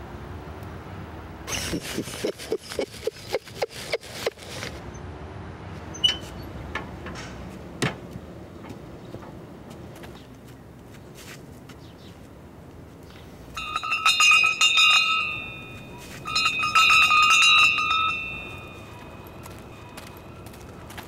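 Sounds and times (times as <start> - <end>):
hand bell clanging: 13.1 - 20.3.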